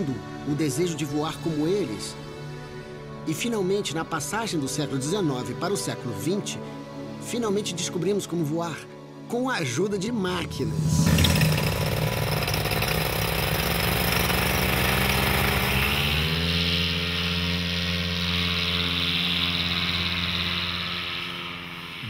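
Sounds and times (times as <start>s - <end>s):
paramotor engine and propeller: 10.6s - 22.0s.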